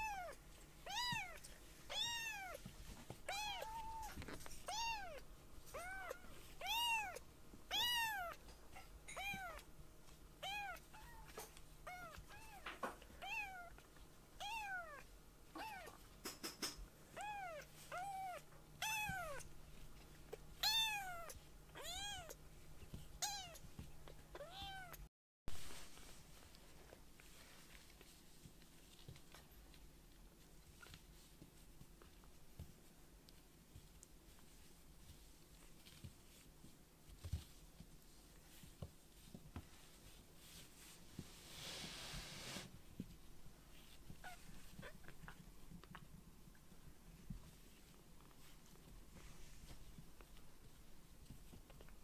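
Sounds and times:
kitten meowing: 0.0 - 2.6, 3.3 - 8.4, 17.2 - 19.4, 20.6 - 22.4.

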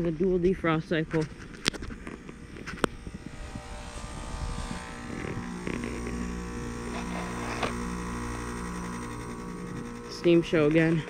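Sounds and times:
low hum with pulsing tone: 0.0 - 11.0.

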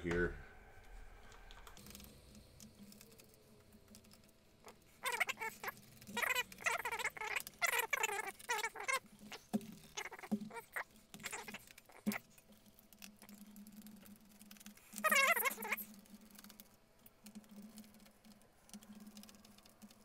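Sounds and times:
screws squeaking: 3.9 - 16.6.

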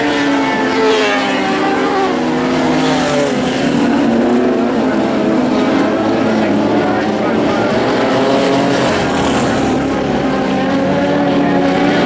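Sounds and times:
racing car engines running hard: 0.0 - 12.0.

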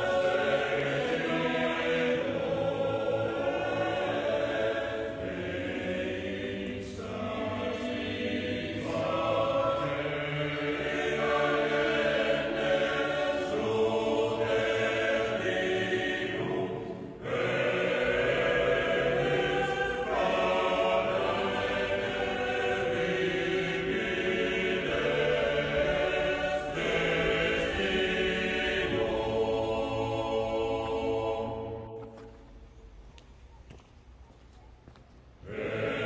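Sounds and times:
mixed-voice choir singing: 0.0 - 32.6, 35.4 - 36.0.

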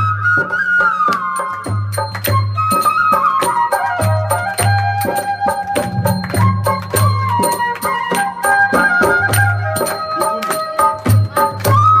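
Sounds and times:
melody over percussion beat: 0.0 - 12.0.

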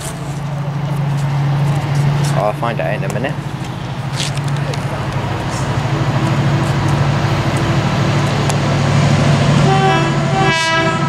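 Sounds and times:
diesel locomotive engine throbbing: 0.0 - 11.0
locomotive horn: 9.6 - 11.0.

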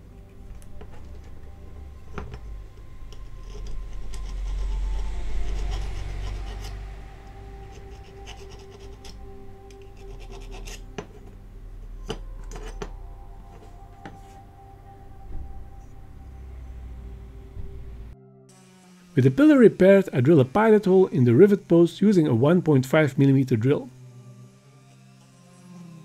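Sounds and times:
hand sanding rasping scratch: 3.1 - 7.0, 7.6 - 9.2, 9.8 - 11.2.

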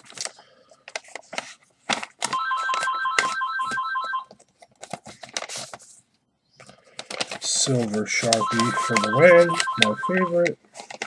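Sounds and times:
paper and envelopes rustling: 0.0 - 11.0
telephone electronic trilling ring: 2.4 - 4.3, 8.4 - 10.4.

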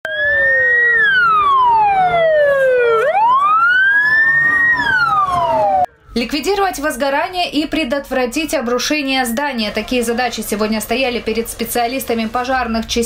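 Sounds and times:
fire engine siren wailing: 0.0 - 6.5.

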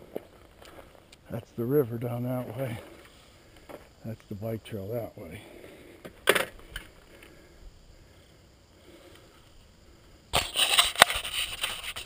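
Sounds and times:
rustling and sharp clicks: 10.3 - 12.0.

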